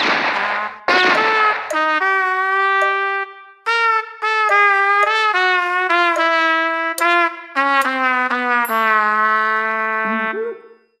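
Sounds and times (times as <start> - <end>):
closing jingle held note: 7.0 - 8.0, 8.6 - 9.2.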